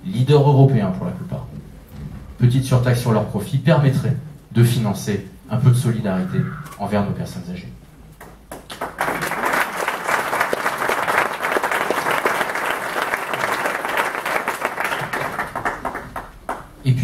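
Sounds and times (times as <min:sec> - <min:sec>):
audience applauding: 0:08.2 - 0:16.8.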